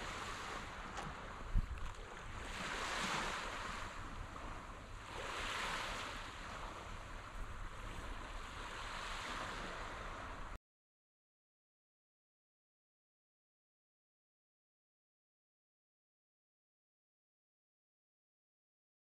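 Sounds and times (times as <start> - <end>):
waves washing onto sandy beach: 0.0 - 10.6
wind rumbling on microphone: 0.0 - 10.6.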